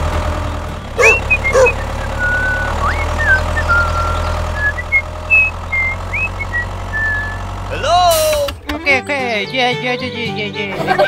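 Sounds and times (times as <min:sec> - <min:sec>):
tractor engine rumble: 0:00.0 - 0:11.0
short squeaky calls: 0:00.9 - 0:07.5
high whistled chirps: 0:01.0 - 0:07.5.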